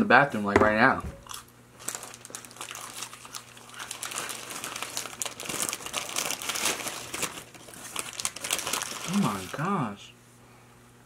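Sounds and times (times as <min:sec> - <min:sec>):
paper wrapper crinkling: 0:01.2 - 0:09.8.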